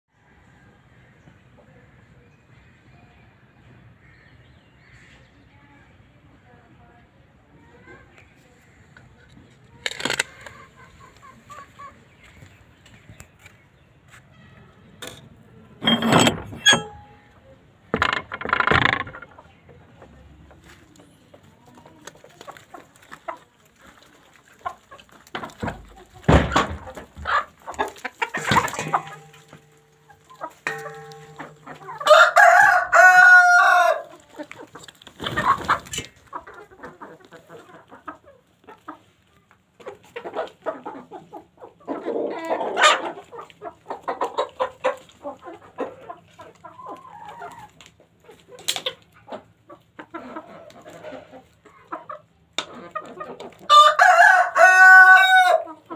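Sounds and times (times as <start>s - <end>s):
chickens clucking: 7.0s - 14.1s, 14.8s - 55.9s
rooster crowing: 32.0s - 34.1s, 53.7s - 55.7s.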